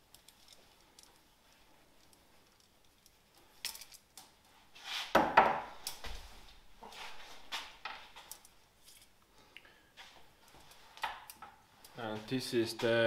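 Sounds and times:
tools knocking on wooden bench: 5.2 - 5.7.

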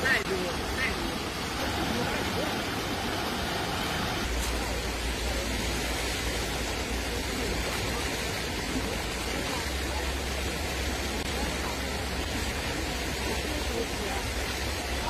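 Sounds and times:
floodwater rushing: 0.0 - 15.0.

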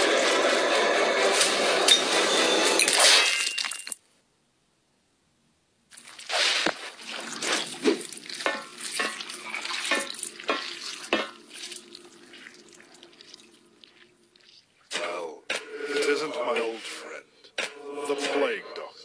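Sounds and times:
gritty scraping and crackling: 5.9 - 14.7.

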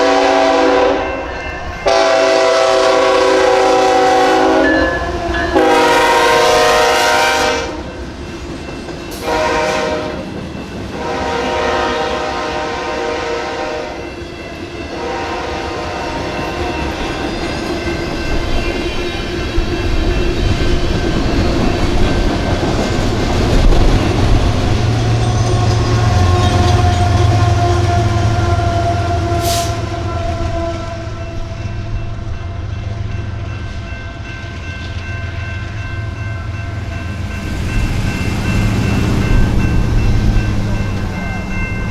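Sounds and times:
train horn blasts: 0.0 - 8.0, 9.2 - 10.3, 11.0 - 14.1, 14.9 - 16.4, 25.2 - 31.9
crossing bell ringing: 0.0 - 41.9
train passing rumble: 0.0 - 41.9.

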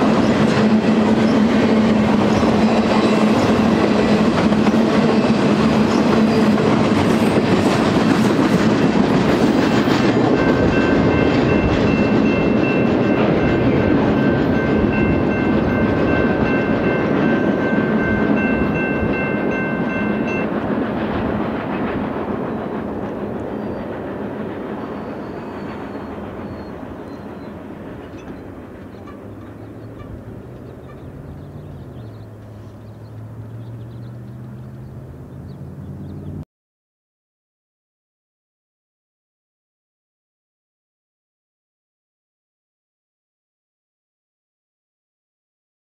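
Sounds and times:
train wheels rumbling on rails: 0.0 - 36.4
steady high ringing tone: 10.4 - 20.6.

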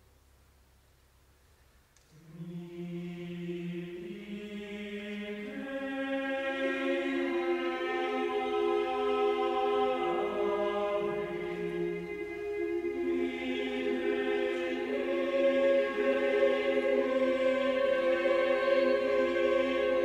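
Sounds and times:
choir singing a cappella: 2.2 - 20.0.

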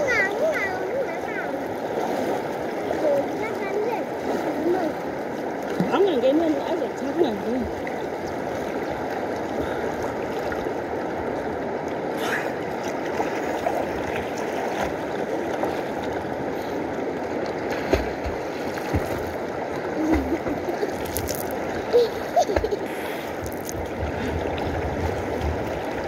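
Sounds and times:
person splashing in water: 17.6 - 24.6.

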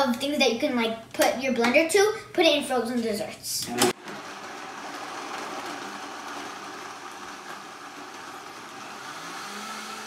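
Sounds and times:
blender running: 3.9 - 10.0.

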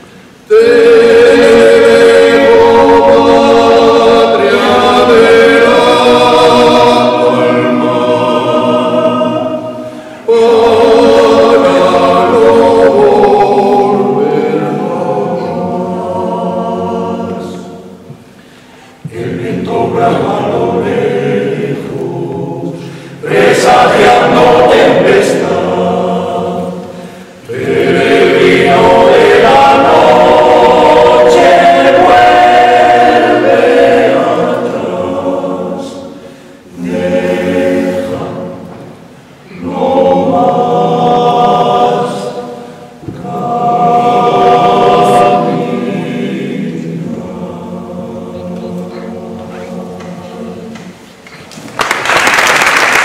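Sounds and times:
male choir singing a cappella: 0.3 - 18.2, 18.8 - 51.2.

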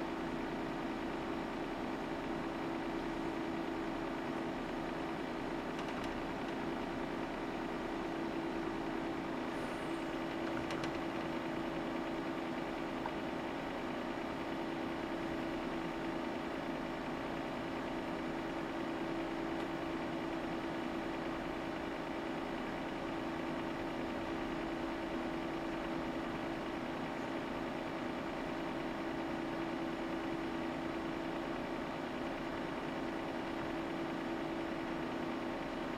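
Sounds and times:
fan-like hiss: 9.3 - 11.4.

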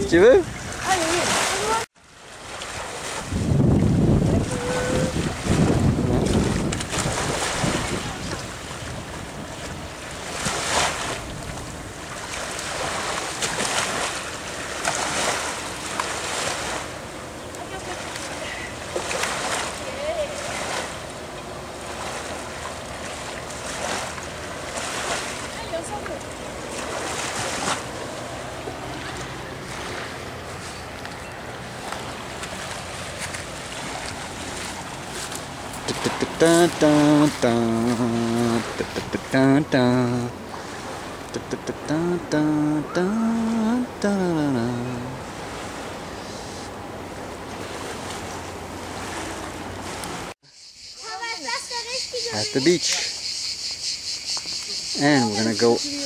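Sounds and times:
motorboat engine hum: 0.0 - 50.3
small waves lapping and splashing: 0.0 - 50.4
wind rumbling on microphone: 2.7 - 13.1.

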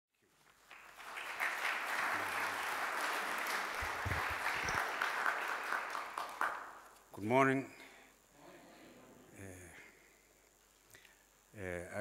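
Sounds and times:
audience applauding: 0.4 - 6.8.

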